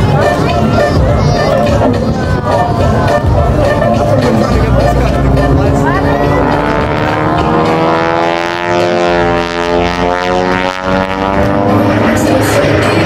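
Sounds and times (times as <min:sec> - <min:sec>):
aircraft flying low past: 0:00.0 - 0:13.0.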